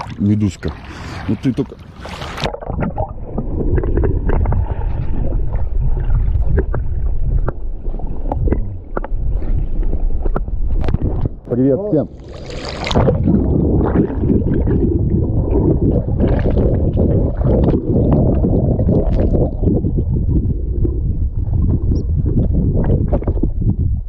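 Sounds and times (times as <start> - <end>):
muffled underwater rumble: 2.3 - 24.0
small clicks and bubbles: 2.4 - 9.2, 12.3 - 23.7
splash into water: 12.2 - 14.7.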